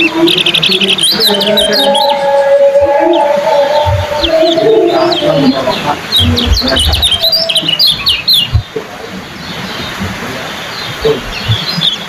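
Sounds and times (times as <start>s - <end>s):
birds chirping: 0.0s - 12.0s
low thumps: 2.7s - 8.9s.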